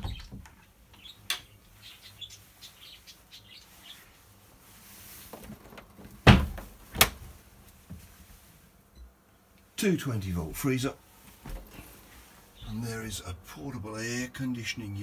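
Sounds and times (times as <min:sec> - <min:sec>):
faint bird chirps: 0:01.0 - 0:04.1
door knocking open: 0:06.3 - 0:07.1.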